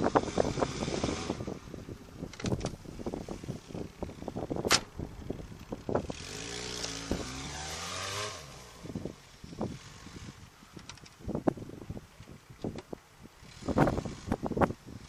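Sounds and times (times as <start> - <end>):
sharp crack: 4.6 - 5.0
car engine revving: 5.9 - 10.4.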